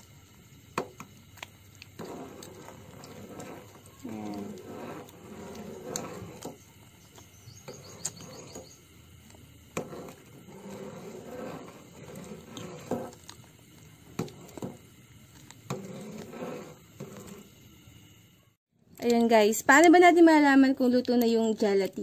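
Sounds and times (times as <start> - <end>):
metal ladle stirring liquid: 1.9 - 6.7, 9.7 - 17.6.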